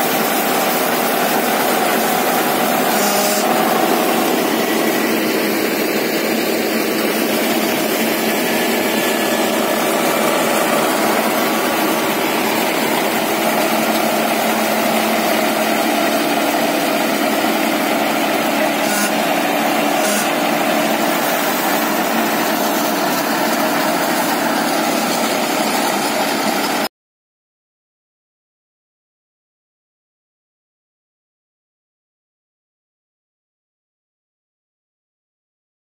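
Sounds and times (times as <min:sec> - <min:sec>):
tractor engine under load: 0:00.0 - 0:26.9.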